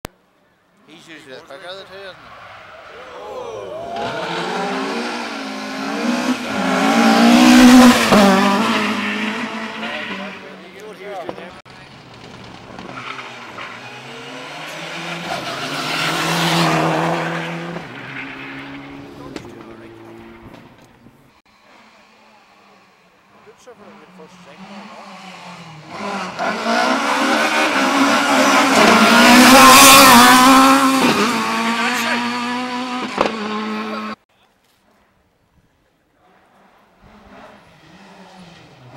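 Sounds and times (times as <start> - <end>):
rally car engine revving past: 3.8 - 10.6, 12.7 - 20.7, 23.8 - 34.2, 36.4 - 38.9.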